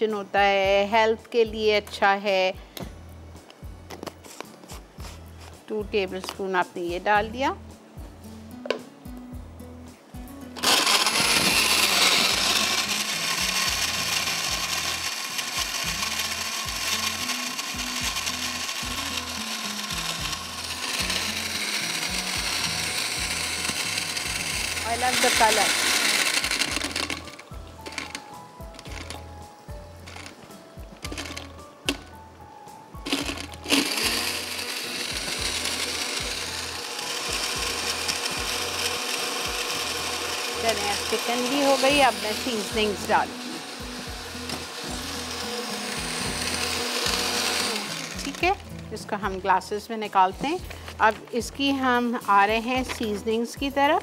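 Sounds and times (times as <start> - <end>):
blender crushing ice: 10.6 - 29.2, 30.0 - 30.4, 31.0 - 32.0, 33.0 - 48.8.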